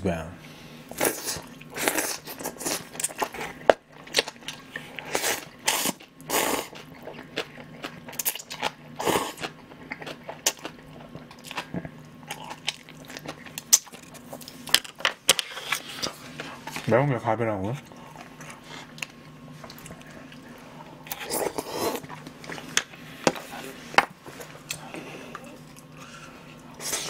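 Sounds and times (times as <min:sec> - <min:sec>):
slurping noodles: 0:04.7 - 0:06.8, 0:21.1 - 0:22.8
wet chewing smacks: 0:17.9 - 0:21.3.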